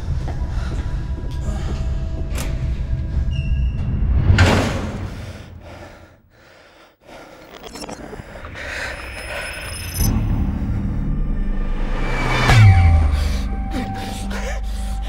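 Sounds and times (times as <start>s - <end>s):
rising rush: 8.0s - 14.2s
low rumble: 8.0s - 15.0s
loud whoosh: 8.9s - 14.3s.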